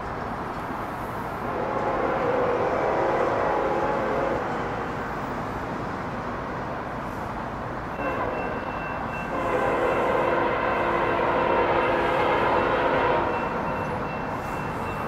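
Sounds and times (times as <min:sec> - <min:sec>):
low train rumble: 0:00.0 - 0:15.0
locomotive air horn: 0:01.4 - 0:04.8, 0:07.9 - 0:15.0.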